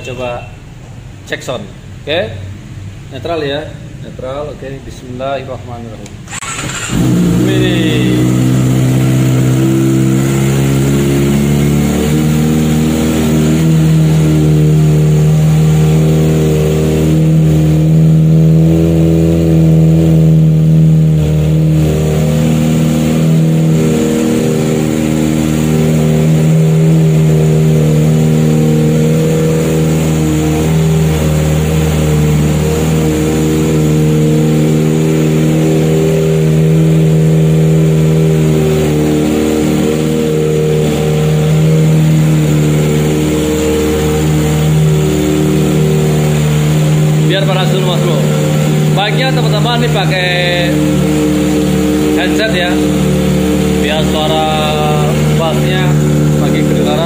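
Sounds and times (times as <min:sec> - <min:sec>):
motorcycle engine idling: 0:06.3 - 0:10.9.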